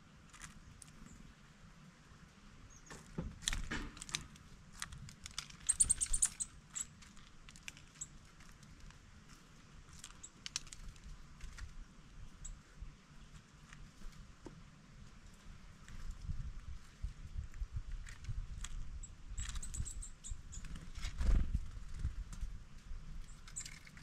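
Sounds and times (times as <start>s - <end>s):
birds pecking at wooden feeder: 2.9s - 11.8s, 21.7s - 24.0s.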